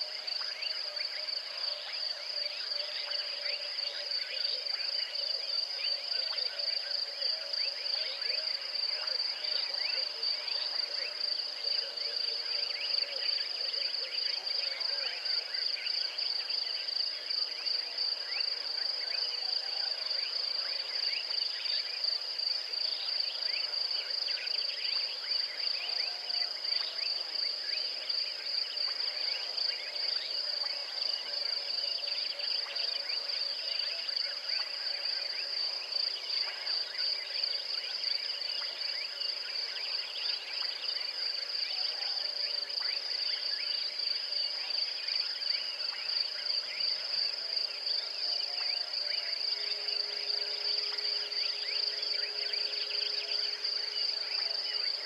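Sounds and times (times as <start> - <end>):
overlapping insect chirps: 42.5 - 55.0.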